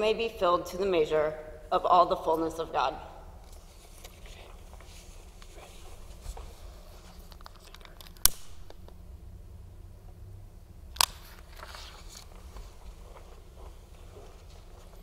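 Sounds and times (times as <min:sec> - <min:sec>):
paper rustling: 0:11.3 - 0:15.0.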